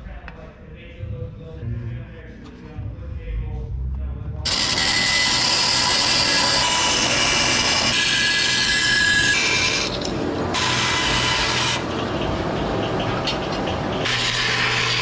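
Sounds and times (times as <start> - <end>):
bandsaw cutting metal sheet: 4.5 - 12.2, 12.9 - 15.0.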